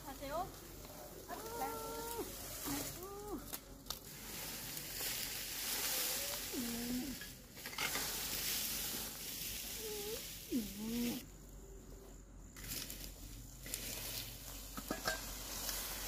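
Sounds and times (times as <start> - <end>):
rake scraping dry grass: 0.0 - 11.3, 12.5 - 16.0.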